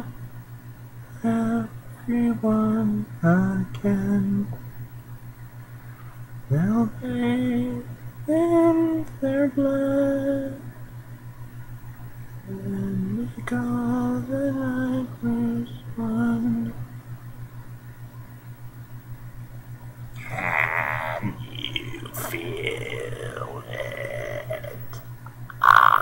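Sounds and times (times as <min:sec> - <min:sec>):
steady low hum: 0:00.0 - 0:26.0
man humming a slow tune: 0:01.2 - 0:04.6, 0:06.5 - 0:10.7, 0:12.5 - 0:16.8, 0:20.1 - 0:26.0.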